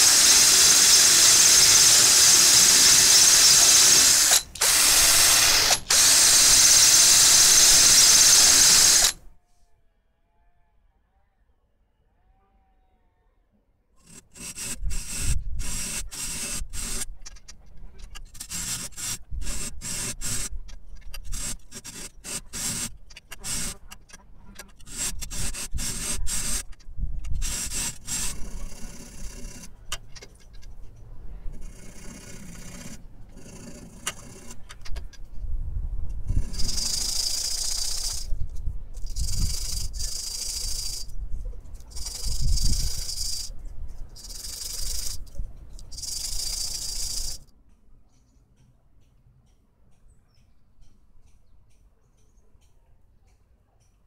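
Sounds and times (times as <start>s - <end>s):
hacksaw cutting steel: 0.0s - 9.3s, 14.0s - 30.7s, 31.5s - 35.2s, 36.2s - 38.4s, 39.0s - 41.1s, 41.8s - 43.6s, 44.2s - 47.5s
metal rubbed on sandpaper: 14.0s - 17.2s, 39.0s - 41.1s, 41.8s - 43.5s, 44.1s - 45.3s, 45.9s - 47.4s.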